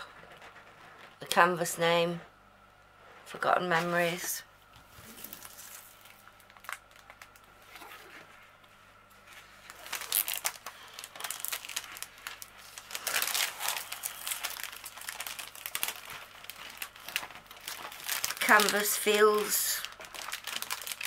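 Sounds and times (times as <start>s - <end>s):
plastic film crinkling: 4.8s - 21.0s.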